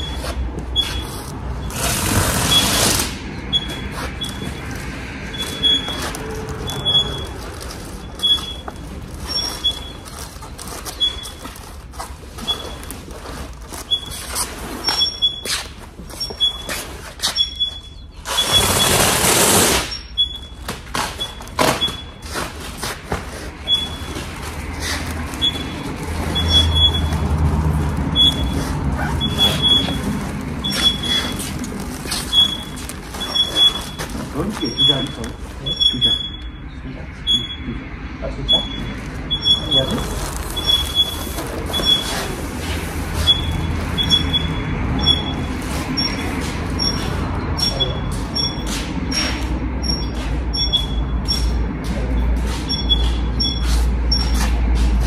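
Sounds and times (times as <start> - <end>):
short high-pitched squeaks: 0.0 - 11.7, 12.4 - 13.1, 13.8 - 22.4, 23.6 - 27.2, 28.1 - 37.7, 38.5 - 51.6, 52.6 - 54.6
aluminium foil crinkling: 31.4 - 35.4, 40.0 - 41.7.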